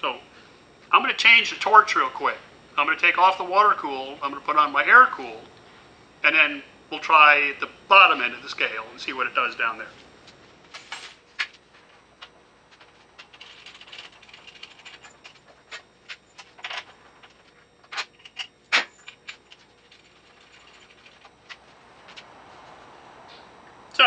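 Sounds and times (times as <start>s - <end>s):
hoses and cables rattling: 12.2s - 22.3s.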